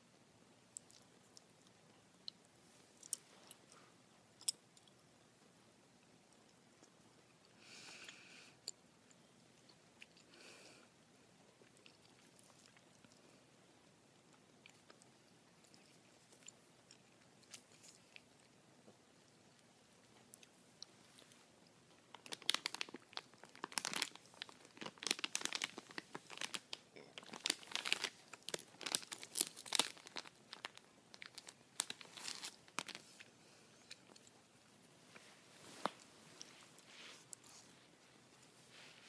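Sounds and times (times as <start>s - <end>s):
plastic bag crinkling: 22.1s - 33.2s.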